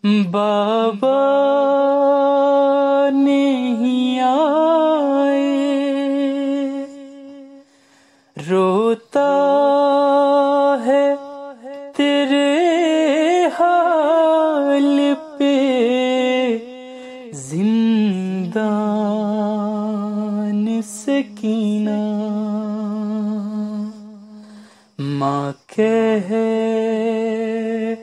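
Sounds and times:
man singing a lament: 0:00.0 - 0:07.7, 0:08.3 - 0:28.0.

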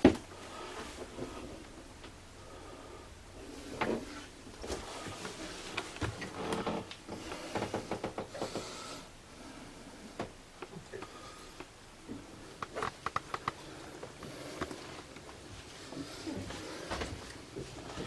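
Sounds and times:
light clicks and knocks: 0:10.2 - 0:15.4.

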